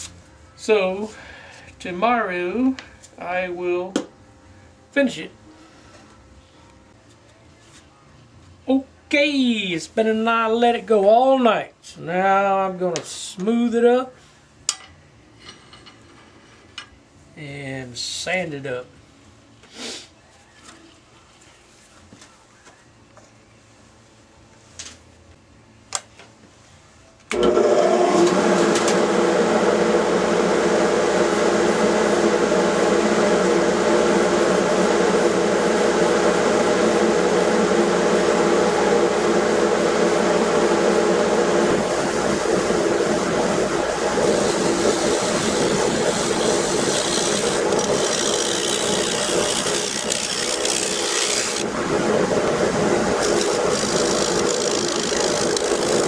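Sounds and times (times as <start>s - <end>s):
wood lathe motor hum: 27.3s - 56.0s
gouge cutting wood shavings: 44.2s - 51.6s, 53.2s - 56.0s.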